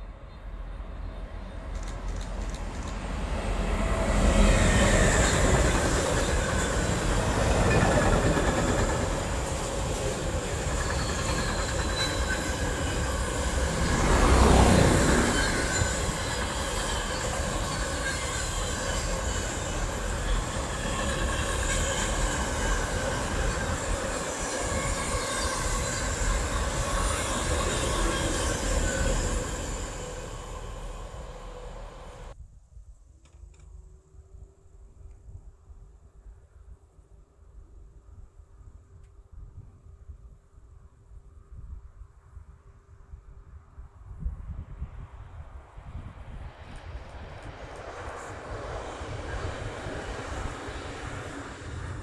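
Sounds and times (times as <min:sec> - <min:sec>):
train wheel squeal: 0:03.8 - 0:32.4, 0:48.0 - 0:52.0.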